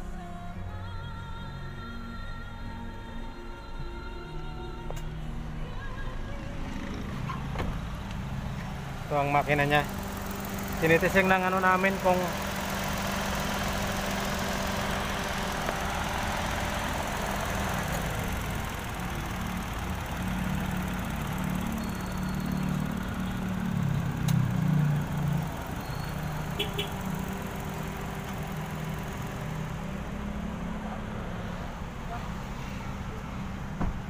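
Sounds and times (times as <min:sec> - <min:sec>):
car engine idling: 0:06.6 - 0:34.0.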